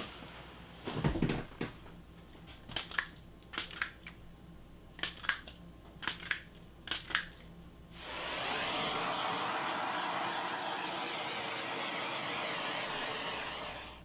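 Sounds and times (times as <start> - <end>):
spray bottle spritzing: 2.7 - 4.0, 5.0 - 5.4, 6.0 - 7.3.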